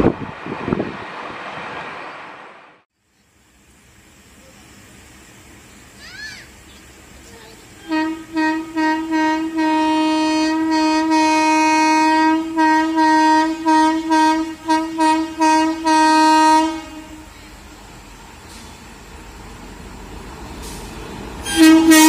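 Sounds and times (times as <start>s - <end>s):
train horn toots and blasts: 7.8s - 17.6s, 21.4s - 22.0s.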